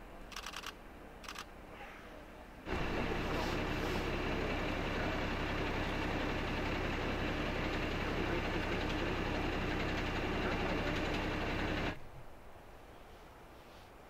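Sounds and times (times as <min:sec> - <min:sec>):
diesel engine idling: 0:02.7 - 0:12.0.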